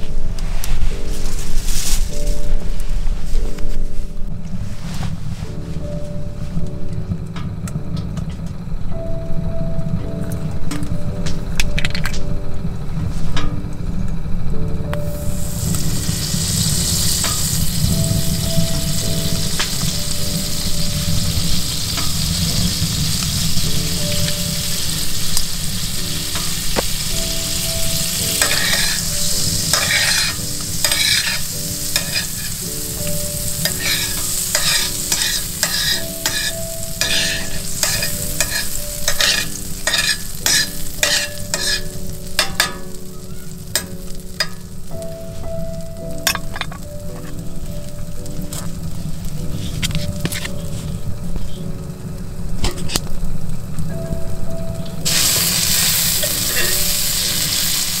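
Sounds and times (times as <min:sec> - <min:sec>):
butter sizzling and popping: 0:14.9 - 0:50.7, 0:54.8 - 0:58.0.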